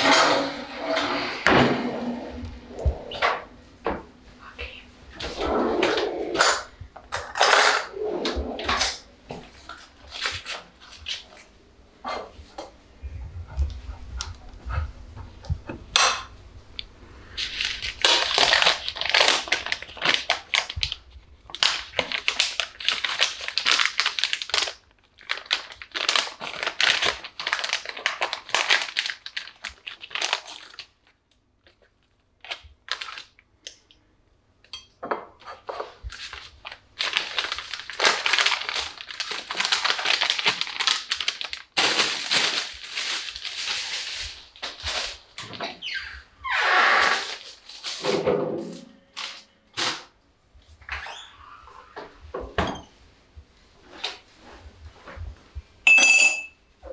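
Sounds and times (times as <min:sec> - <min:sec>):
plastic packaging crinkling: 0:08.9 - 0:11.5, 0:17.2 - 0:33.5, 0:35.8 - 0:45.6, 0:47.1 - 0:48.0, 0:49.1 - 0:50.0.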